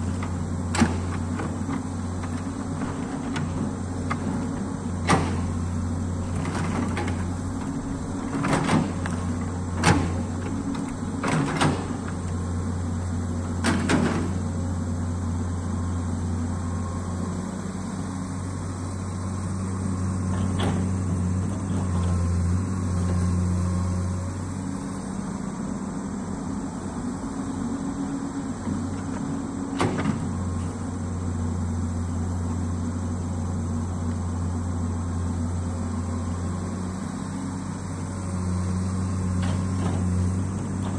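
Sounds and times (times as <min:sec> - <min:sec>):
excavator diesel engine running: 0:00.0 - 0:40.9.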